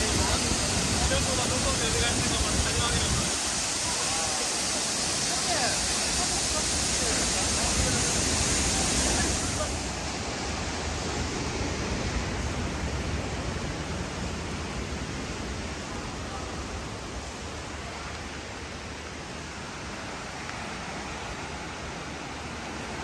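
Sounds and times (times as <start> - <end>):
waterfall rushing: 0.0 - 23.0.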